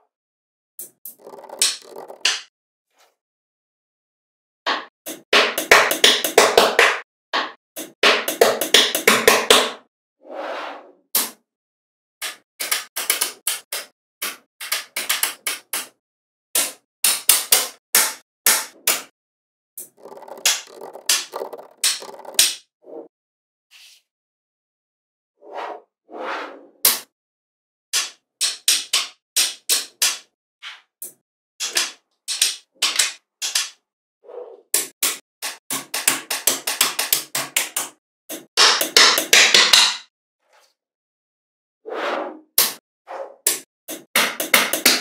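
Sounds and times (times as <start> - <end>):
magnetic balls clicking together: 0.8 - 2.4, 19.8 - 22.5.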